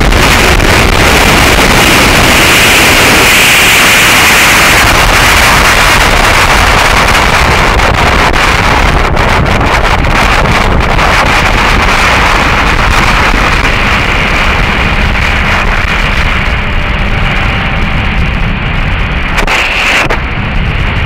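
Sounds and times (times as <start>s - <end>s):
heavy wind rush on microphone: 0.0s - 21.0s
motorcycle engine running: 0.0s - 21.0s.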